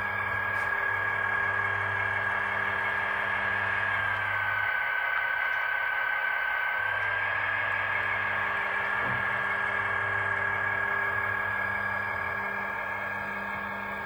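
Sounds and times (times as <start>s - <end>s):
low hum: 0.0s - 14.0s
toy locomotive motor whining: 2.9s - 13.3s.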